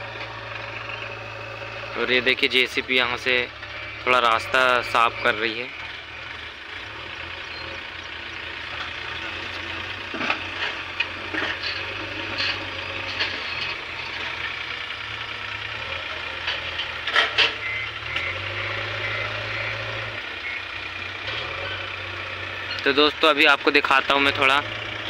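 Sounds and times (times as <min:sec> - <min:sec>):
diesel engine running: 0:00.0 - 0:25.0
beeping alarm: 0:02.9 - 0:06.2, 0:17.4 - 0:20.8.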